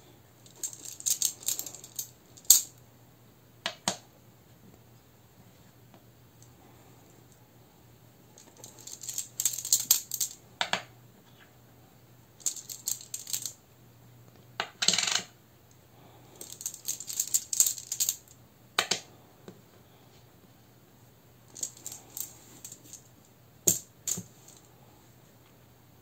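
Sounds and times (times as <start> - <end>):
stone tiles rattling in a pouch: 0.5 - 2.7, 8.4 - 10.4, 12.4 - 13.6, 16.4 - 18.3, 21.5 - 23.0.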